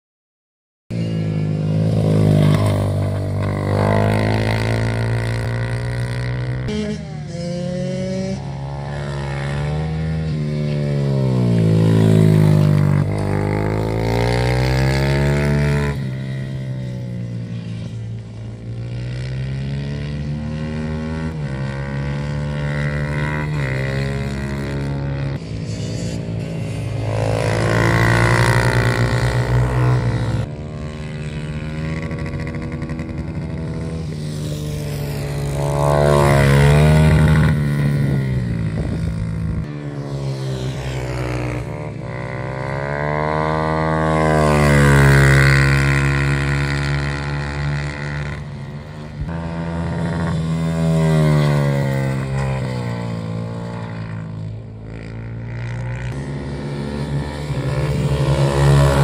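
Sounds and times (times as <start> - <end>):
racing motorcycle engine revving: 0.9 - 59.0.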